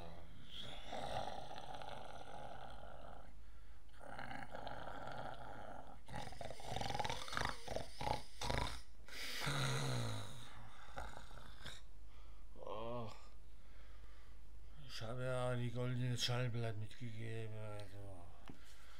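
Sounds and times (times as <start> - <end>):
man snoring: 0.0 - 3.3, 3.9 - 11.8.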